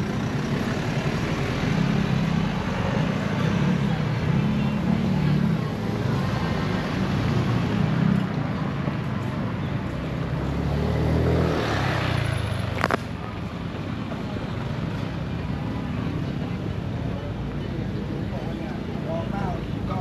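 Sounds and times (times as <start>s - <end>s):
vehicle rumbling in motion: 0.0s - 20.0s.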